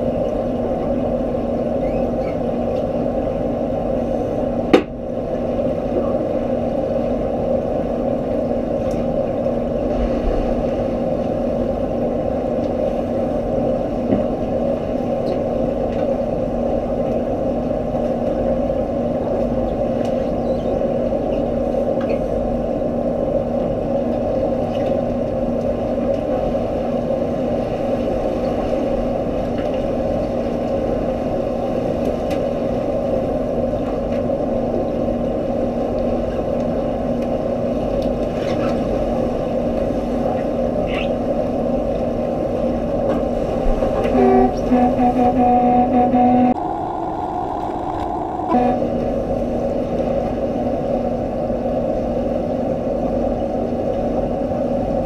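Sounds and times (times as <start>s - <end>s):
underwater pool machine hum: 37.8s - 52.1s.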